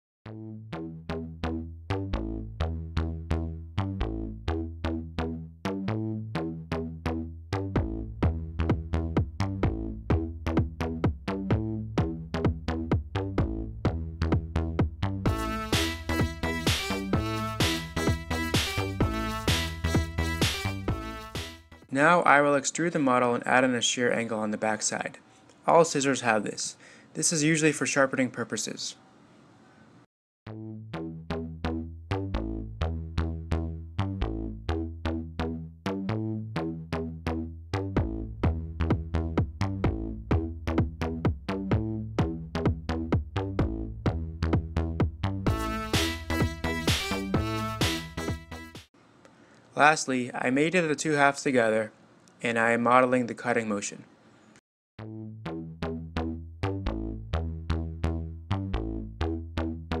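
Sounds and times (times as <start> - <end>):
electronic music with drum machine: 0.4 - 21.9, 37.8 - 48.9.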